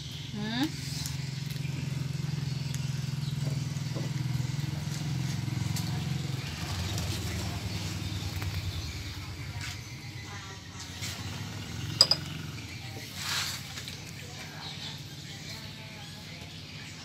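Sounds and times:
motorbike engine running: 0:00.0 - 0:13.1.

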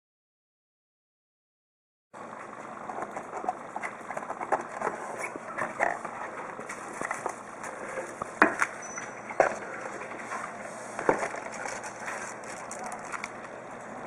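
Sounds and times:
plastic wrap rustling: 0:09.4 - 0:13.4.

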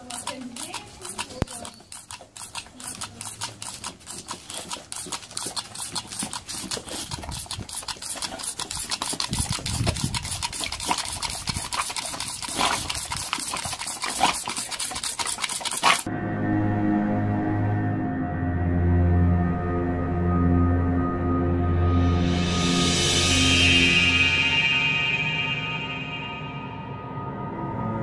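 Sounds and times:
water pistol squirts: 0:00.0 - 0:16.1
sharp hits: 0:22.3 - 0:27.9.

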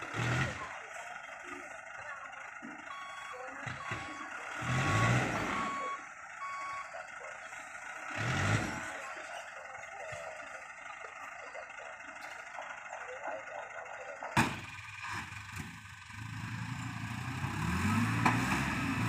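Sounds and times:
truck warning beeps: 0:00.0 - 0:15.0
truck engine noise: 0:00.0 - 0:19.0.

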